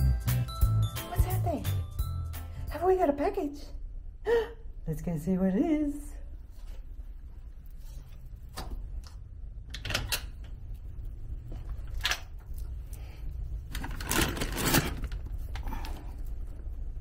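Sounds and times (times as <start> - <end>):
low rumble of handling noise: 5.6 - 17.0
paper wrapping crackling and rustling: 13.6 - 16.0.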